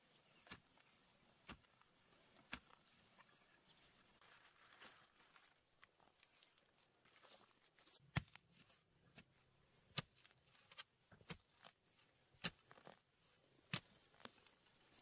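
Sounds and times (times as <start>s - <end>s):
digging tool striking soil: 12.4s - 13.0s.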